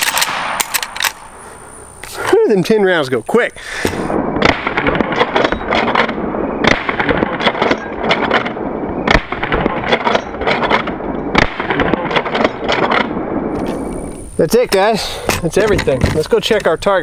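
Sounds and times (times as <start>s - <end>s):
rifle lever clacking: 0.0s - 1.2s
rifle shots: 0.0s - 1.3s, 4.1s - 14.0s.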